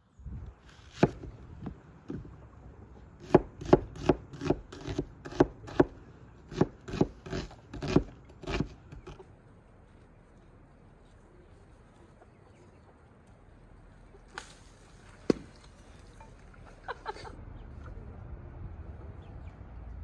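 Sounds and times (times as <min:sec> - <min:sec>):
knife chopping on wooden board: 0:00.9 - 0:02.3, 0:03.2 - 0:09.2.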